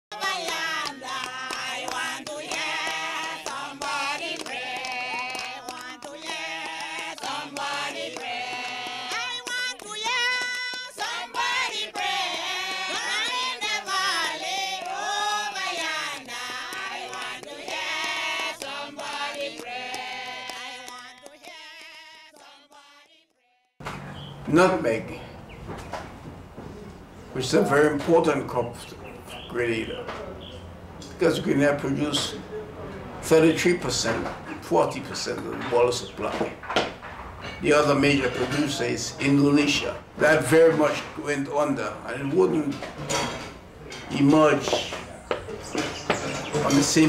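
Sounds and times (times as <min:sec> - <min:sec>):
choir singing with music: 0:00.1 - 0:23.3.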